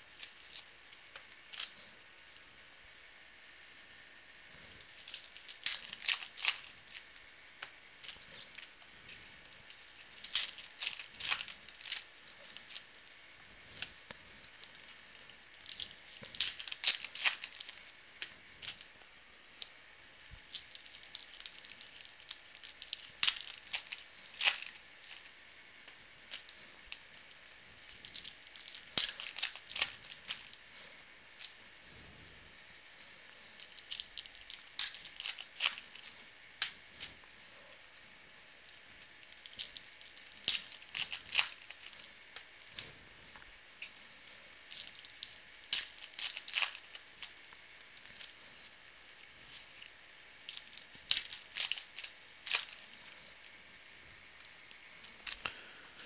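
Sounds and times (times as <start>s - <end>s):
foil wrappers tearing and crinkling: 0.0s - 2.4s, 4.8s - 7.3s, 8.0s - 25.4s, 26.3s - 31.6s, 33.4s - 37.2s, 38.6s - 42.1s, 43.8s - 53.6s.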